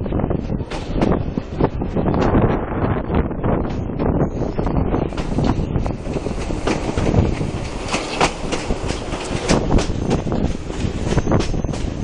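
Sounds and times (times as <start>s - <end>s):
train wheels rumbling on track: 0.0s - 12.0s
wheels clacking over rail joints: 0.6s - 2.4s, 4.5s - 12.0s.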